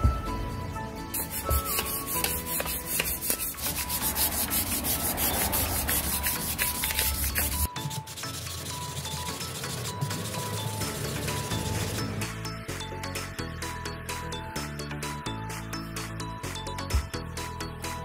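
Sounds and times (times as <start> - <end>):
sandpaper rubbing on filler: 1.2 - 12.1.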